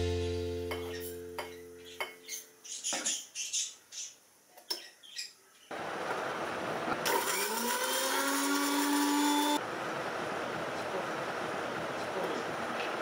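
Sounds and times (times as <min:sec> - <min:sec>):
electric mixer grinder motor whine: 0:07.0 - 0:09.6.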